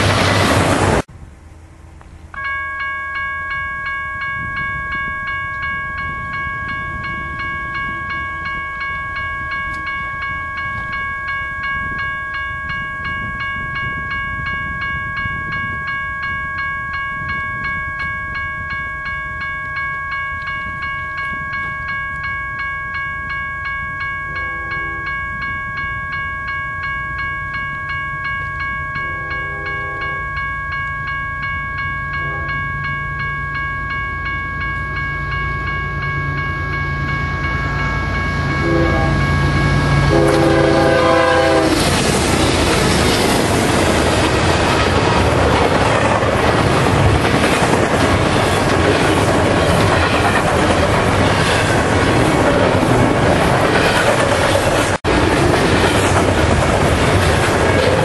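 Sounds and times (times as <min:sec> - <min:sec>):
low train rumble: 0:00.0 - 0:58.0
crossing bell ringing: 0:02.3 - 0:58.0
train horn: 0:29.2 - 0:30.2, 0:32.1 - 0:32.6, 0:38.5 - 0:41.9.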